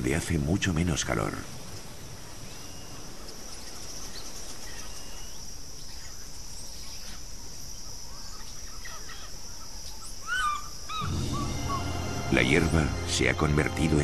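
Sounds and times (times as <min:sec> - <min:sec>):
faint bird chirps: 0:01.6 - 0:12.9
bird calls: 0:01.6 - 0:14.0
high-pitched insect drone: 0:10.3 - 0:14.0.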